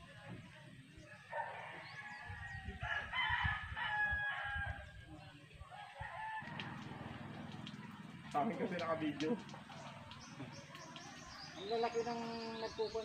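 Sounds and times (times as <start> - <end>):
rooster crowing: 1.5 - 4.8, 5.7 - 7.0.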